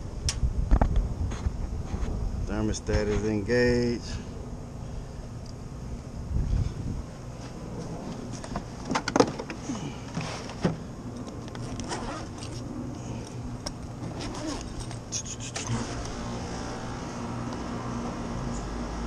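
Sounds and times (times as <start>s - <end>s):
low hum: 0.0s - 19.0s
zipper rasping: 11.6s - 12.6s, 14.0s - 15.0s.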